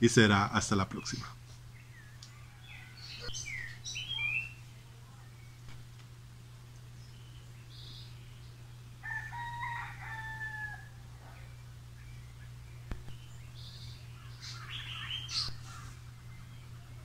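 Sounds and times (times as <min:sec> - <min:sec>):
steady low hum: 0:00.0 - 0:17.0
bird calls: 0:00.7 - 0:06.0, 0:06.8 - 0:17.0
rooster crowing: 0:02.2 - 0:03.3, 0:09.0 - 0:11.5.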